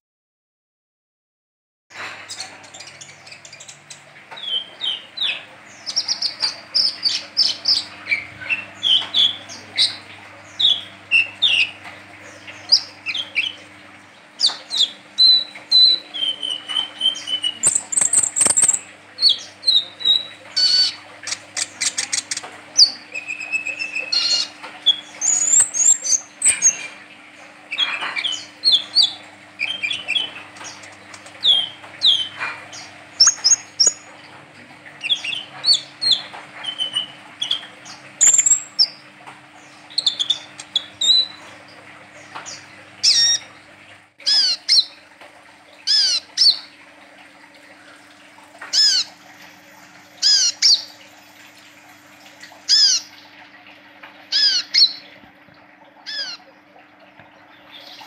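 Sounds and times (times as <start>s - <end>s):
fast ticking bird notes: 14.4s - 26.8s, 28.2s - 34.1s, 35.0s - 39.0s, 39.8s - 41.4s.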